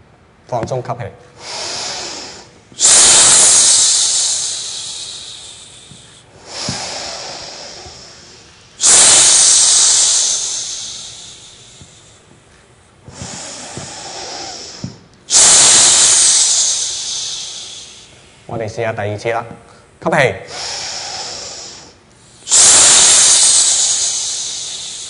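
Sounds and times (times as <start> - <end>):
loud hissing breaths: 1.4 - 18.7, 19.7 - 25.0.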